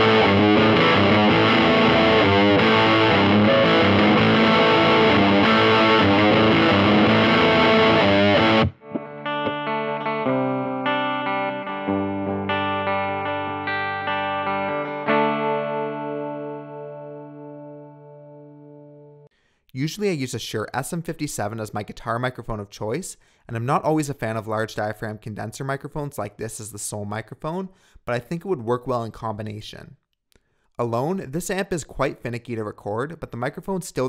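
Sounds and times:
distorted electric guitar: 0:00.0 - 0:19.2
clean guitar notes and chords: 0:00.0 - 0:19.3.

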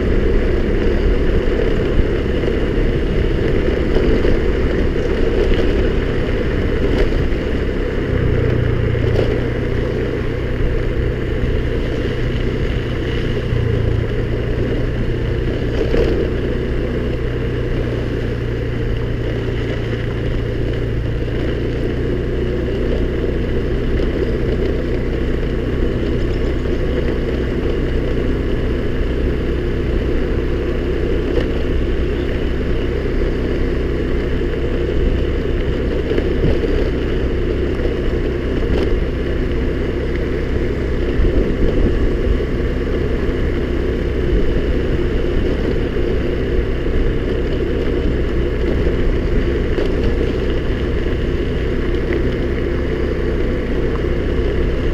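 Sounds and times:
scooter engine running: 0:00.0 - 0:54.9.

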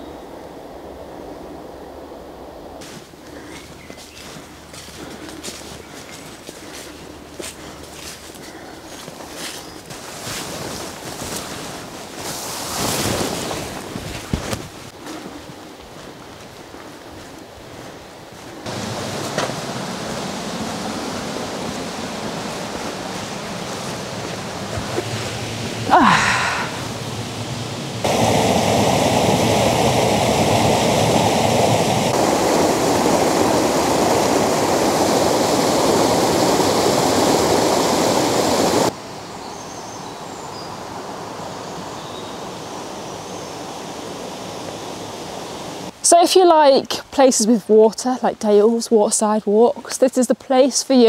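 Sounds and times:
stream and waterfall rushing: 0:02.8 - 0:14.0, 0:18.4 - 0:46.1.

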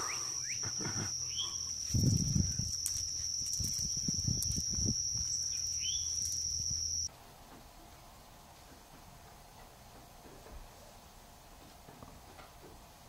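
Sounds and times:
insects trilling: 0:00.0 - 0:07.1
small bird chirping: 0:00.0 - 0:07.1.

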